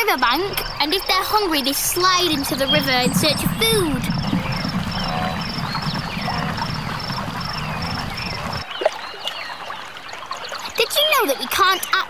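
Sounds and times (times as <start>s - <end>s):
river ambience: 0.1s - 8.8s
herd rumbling: 1.9s - 8.6s
gliding calls: 2.0s - 8.6s.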